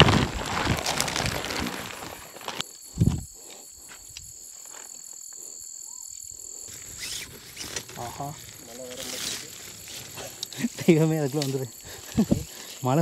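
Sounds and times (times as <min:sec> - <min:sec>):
tent fabric rustling: 0:00.0 - 0:02.7, 0:06.7 - 0:13.0
crickets chirping: 0:00.0 - 0:13.0.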